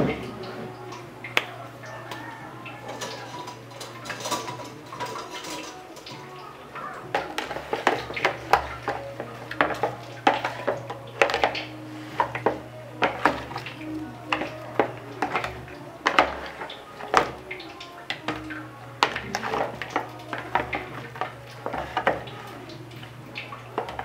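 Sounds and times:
spatula scraping plastic bowl: 6.8s - 24.0s.

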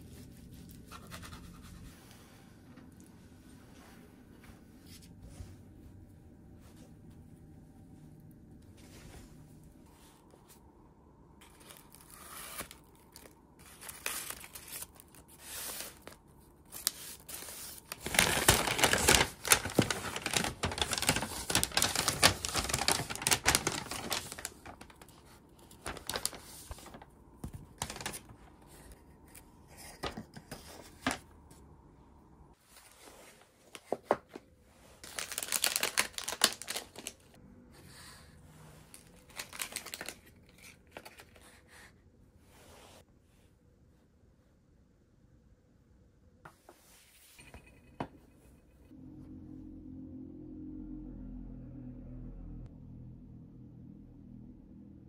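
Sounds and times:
paper crinkling and rustling: 11.4s - 31.3s, 32.7s - 37.4s, 38.9s - 41.8s.

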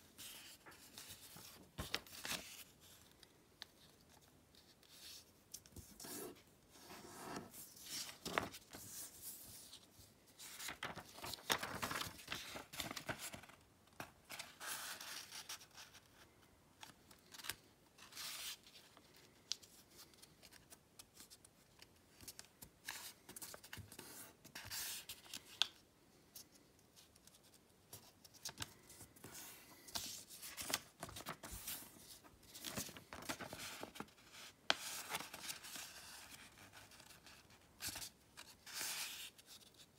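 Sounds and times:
paper folding and creasing: 0.2s - 16.2s, 26.4s - 39.9s.

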